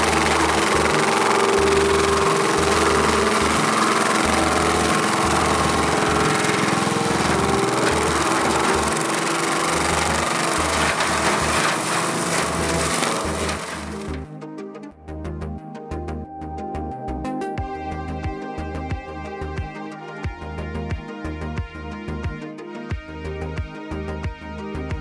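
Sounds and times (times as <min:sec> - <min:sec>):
mulcher drum grinding brush: 0:00.0 - 0:14.3
skid steer engine under load: 0:00.0 - 0:14.3.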